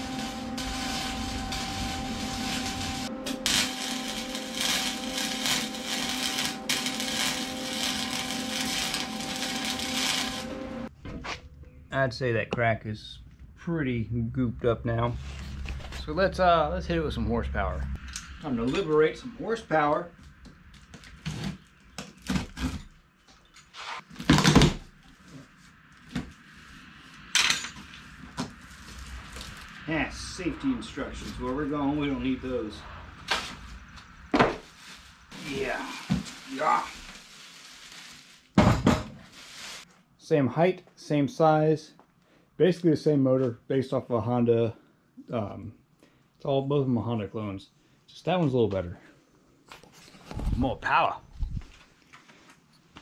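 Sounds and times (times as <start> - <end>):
arc welding crackling: 0.0 - 10.9, 28.0 - 32.3, 34.6 - 38.6, 39.3 - 39.9
steady hum: 0.0 - 10.9.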